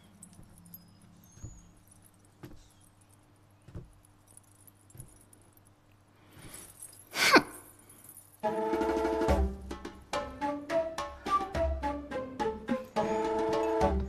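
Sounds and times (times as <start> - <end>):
faint metallic jingling: 0.0 - 8.5
music with drum-like percussion: 8.8 - 10.3.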